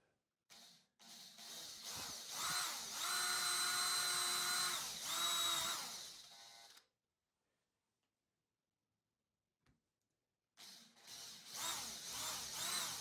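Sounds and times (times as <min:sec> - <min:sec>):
electric drill boring into plywood: 0:00.5 - 0:06.8, 0:10.6 - 0:13.0.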